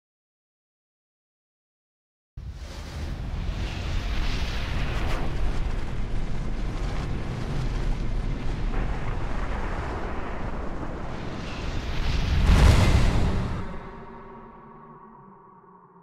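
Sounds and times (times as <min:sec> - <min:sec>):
deep rumble: 0:02.4 - 0:15.0
whooshing noise: 0:02.4 - 0:15.0.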